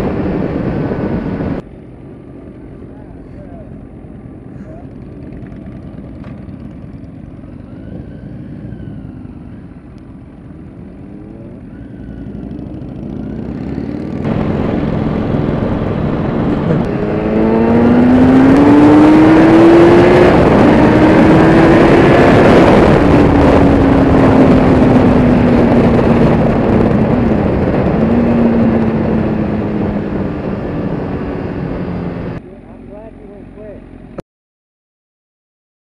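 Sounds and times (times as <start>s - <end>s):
wind rush: 0.0s - 2.4s, 6.9s - 32.4s
motorcycle engine revving: 3.7s - 32.4s.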